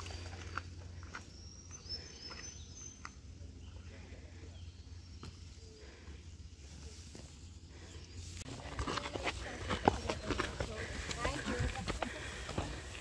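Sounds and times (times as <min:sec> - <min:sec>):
footsteps on forest trail: 0:00.0 - 0:04.1, 0:05.0 - 0:13.0
faint bird chirps: 0:01.0 - 0:06.2.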